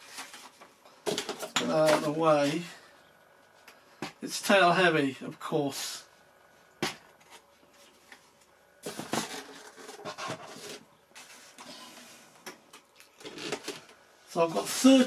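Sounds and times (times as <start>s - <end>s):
foam plane rustling and scraping: 7.1s - 12.4s.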